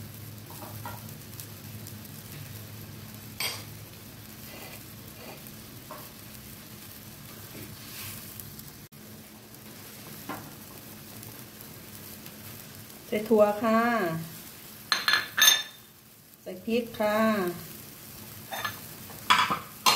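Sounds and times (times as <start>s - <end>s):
curry simmering and sizzling: 0.0s - 19.9s.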